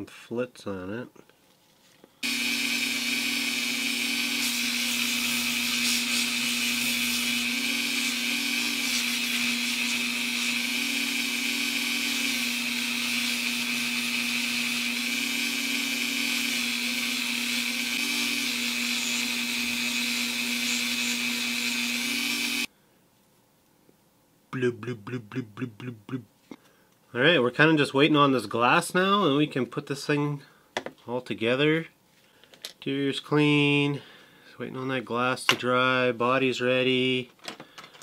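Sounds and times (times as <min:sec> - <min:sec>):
rotary tool polishing metal: 0:02.2 - 0:22.7.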